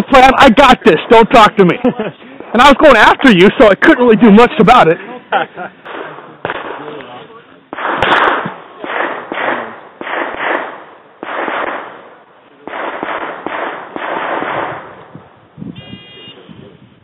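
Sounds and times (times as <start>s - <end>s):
pistol shots with echo: 5.8s - 7.1s, 7.7s - 15.1s.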